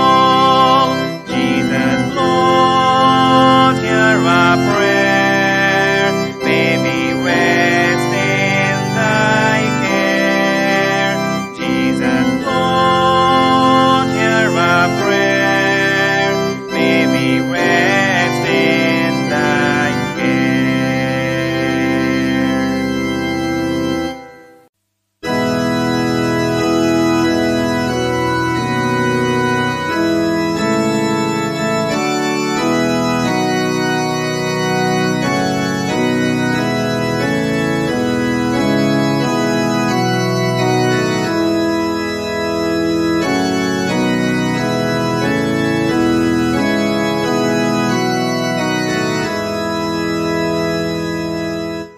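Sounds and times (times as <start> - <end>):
organ music: 0.0 - 51.9.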